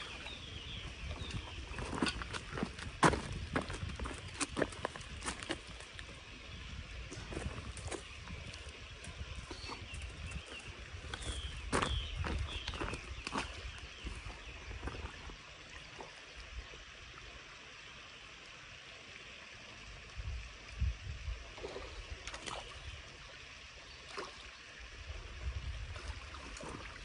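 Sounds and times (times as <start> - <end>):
water sloshing and splashing: 0.0 - 6.4, 21.5 - 24.6, 25.5 - 27.0.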